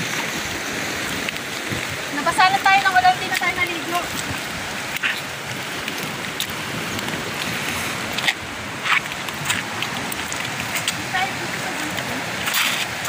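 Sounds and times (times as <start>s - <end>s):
sea surf: 0.0s - 13.0s
wind: 0.0s - 13.0s
footsteps on pebbles: 2.6s - 13.0s.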